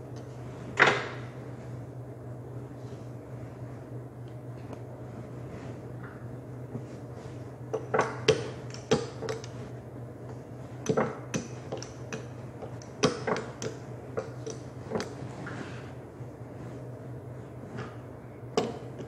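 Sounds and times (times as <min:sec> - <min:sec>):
steady low hum: 0:00.0 - 0:19.0
gloved hands patting dough: 0:06.5 - 0:19.0.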